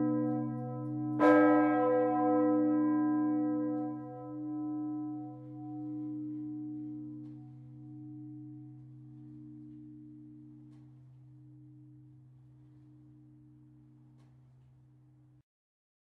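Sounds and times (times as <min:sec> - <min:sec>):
church bell humming: 0:00.0 - 0:15.3.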